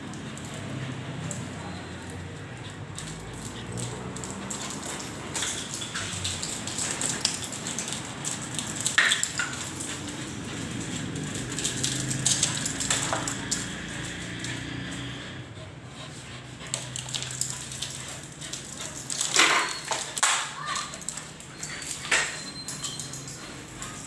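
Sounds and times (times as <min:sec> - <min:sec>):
light clatters: 0:00.0 - 0:15.1, 0:16.0 - 0:24.0.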